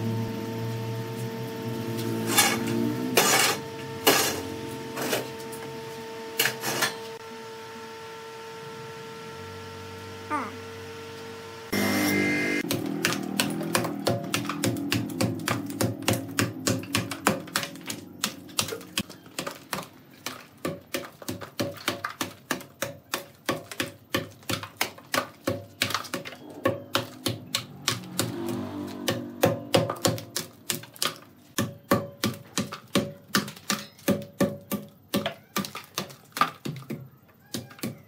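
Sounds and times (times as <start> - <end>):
hatchet chopping wood: 12.6 - 19.5, 20.6 - 35.5.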